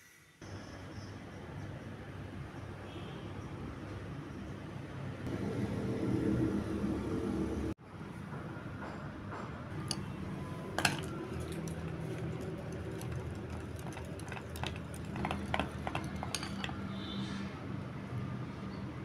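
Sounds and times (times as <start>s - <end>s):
whisk stirring in glass bowl: 10.8s - 16.9s
clinks against glass: 10.8s - 17.0s.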